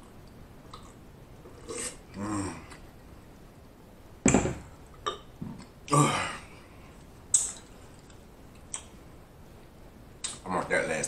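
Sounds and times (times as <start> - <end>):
man grunting: 2.2 - 2.7, 5.9 - 6.5
mouth clicks: 7.3 - 9.0.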